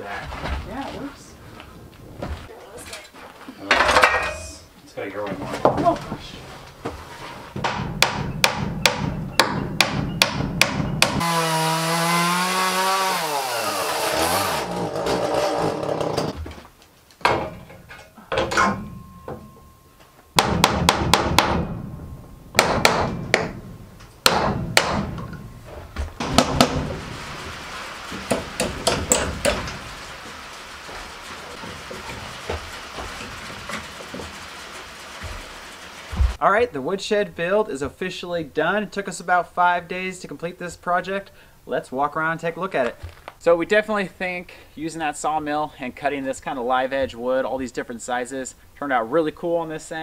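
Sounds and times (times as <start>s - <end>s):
hammer striking nails: 7.6s - 11.4s, 20.4s - 21.8s, 22.5s - 25.4s, 26.2s - 26.9s, 28.1s - 29.7s.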